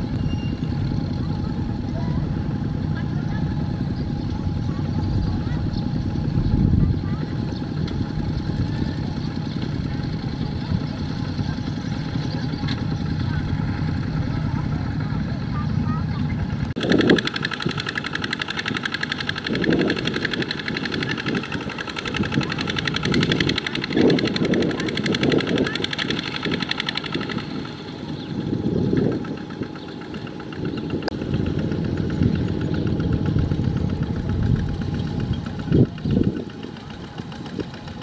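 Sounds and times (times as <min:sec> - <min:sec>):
diesel tractor engine under load: 0:00.0 - 0:38.0.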